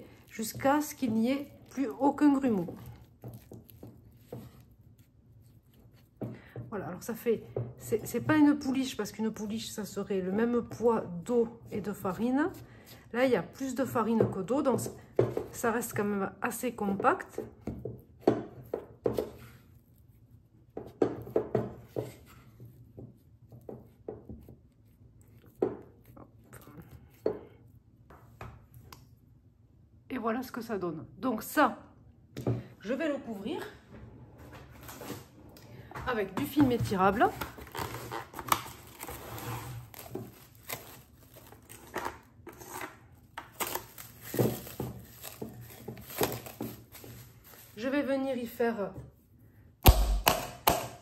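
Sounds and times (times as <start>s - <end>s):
spatula scraping mixing bowl: 0.0s - 6.4s
cling film crinkling: 39.8s - 42.2s.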